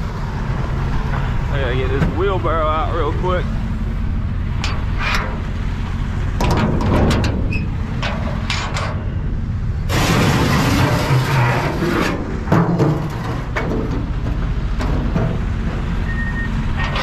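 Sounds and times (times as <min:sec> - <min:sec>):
diesel engine idling: 0:00.0 - 0:16.9
metal latch and doors clanking: 0:06.4 - 0:09.1
wheelbarrow scraping across truck bed: 0:09.8 - 0:17.0.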